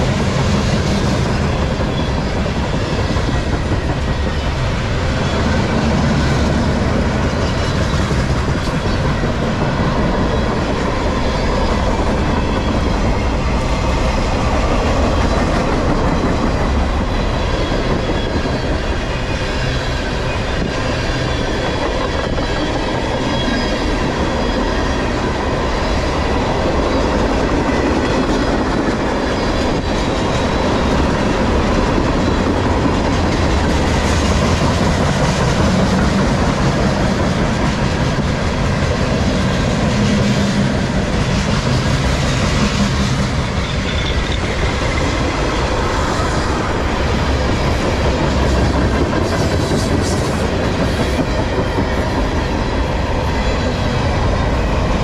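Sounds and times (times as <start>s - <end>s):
steel wheels clacking on rails: 0.0s - 55.0s.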